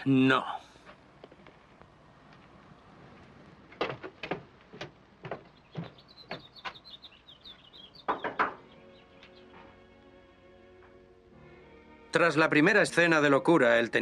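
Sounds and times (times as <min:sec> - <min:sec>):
boot footsteps on wooden porch: 0:00.8 - 0:10.1
birds chirping: 0:02.2 - 0:11.8
knocks: 0:03.8 - 0:06.8, 0:08.0 - 0:08.7.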